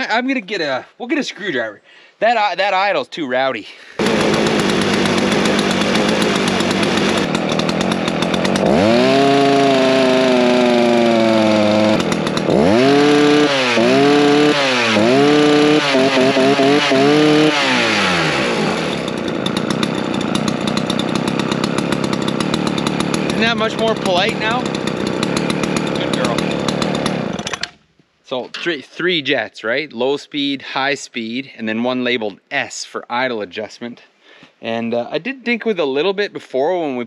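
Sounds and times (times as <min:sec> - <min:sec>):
chainsaw idling and revving: 0:04.0 - 0:27.8.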